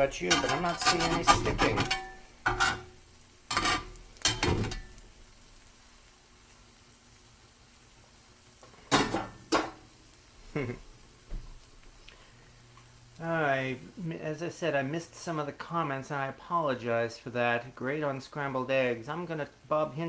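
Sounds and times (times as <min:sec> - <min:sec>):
eggs frying sizzle: 0:00.0 - 0:20.0
metal spatula scraping skillet: 0:00.1 - 0:05.0.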